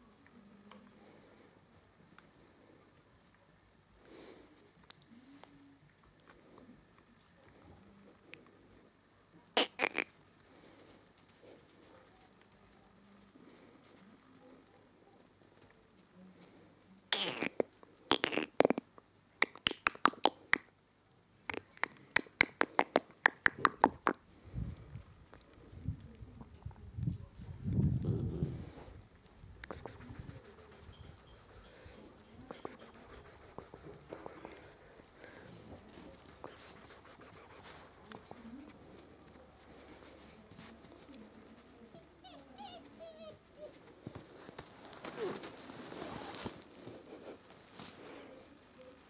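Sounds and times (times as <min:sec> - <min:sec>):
person clicking tongue: 0:21.5 - 0:24.2
puppy whimpers: 0:42.0 - 0:43.8.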